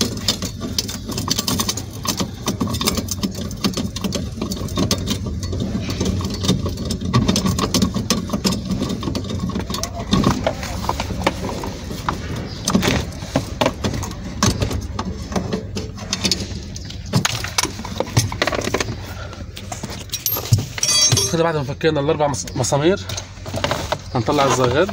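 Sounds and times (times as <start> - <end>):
hand tools clicking on metal: 20.0 - 21.4.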